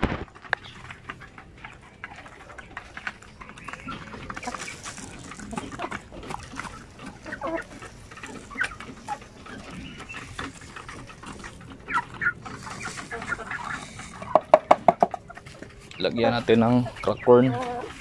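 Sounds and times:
beaks pecking on wooden trough: 0:00.0 - 0:18.0
chicken calls: 0:00.0 - 0:18.0
chickens clucking: 0:00.0 - 0:18.0.

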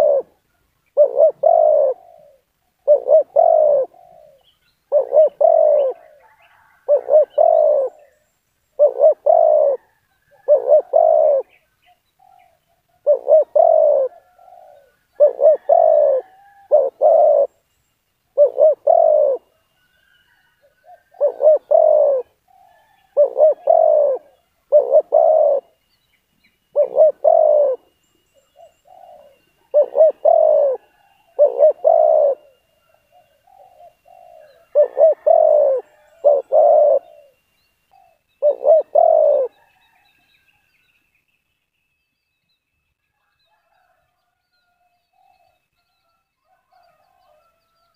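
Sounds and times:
dove cooing: 0:00.0 - 0:08.2, 0:08.8 - 0:17.6, 0:18.3 - 0:25.8, 0:26.7 - 0:40.1.

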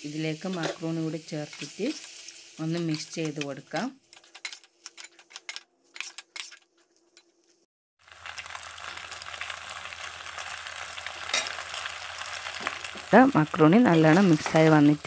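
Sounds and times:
pot sizzling on stove: 0:00.0 - 0:06.6, 0:08.0 - 0:15.0
metal spoon scraping a pot: 0:04.1 - 0:07.3.

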